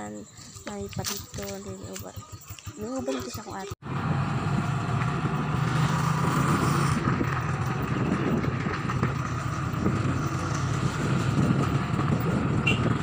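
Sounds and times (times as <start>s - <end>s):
motorcycle engine humming: 0.0s - 13.0s
rushing wind noise: 4.1s - 13.0s.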